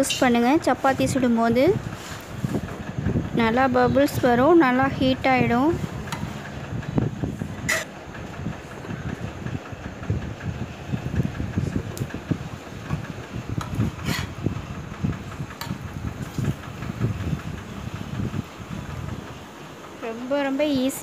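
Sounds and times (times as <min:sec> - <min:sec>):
low uneven rumble: 0:00.0 - 0:21.0
spatula scraping iron griddle: 0:01.9 - 0:02.7, 0:07.6 - 0:08.0, 0:13.6 - 0:14.5.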